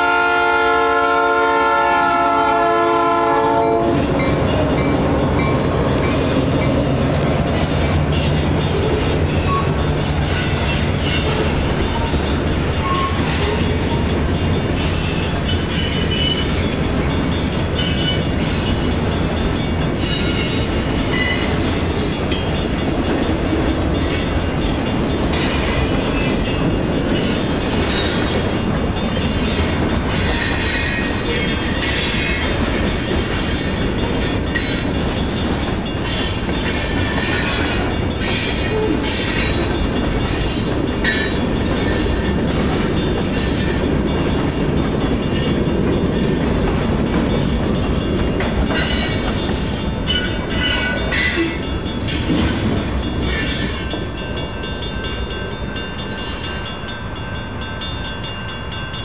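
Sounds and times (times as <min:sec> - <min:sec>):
train wheels rumbling on rail: 0:00.0 - 0:59.0
wheel squeals: 0:21.2 - 0:22.4.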